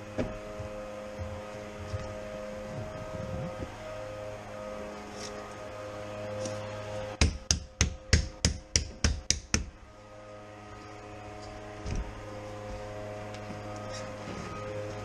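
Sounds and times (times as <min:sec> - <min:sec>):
steady low hum: 0:00.0 - 0:15.0
sharp knocks: 0:07.2 - 0:09.7.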